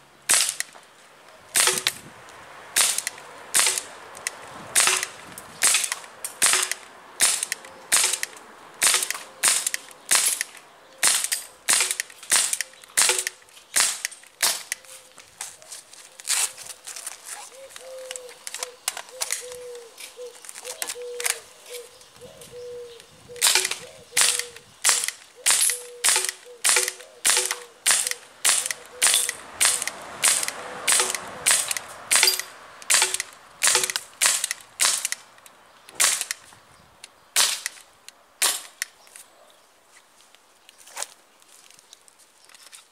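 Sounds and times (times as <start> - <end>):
airsoft pistol shots: 1.6 - 2.0, 2.8 - 3.9, 4.8 - 14.7, 23.4 - 35.1.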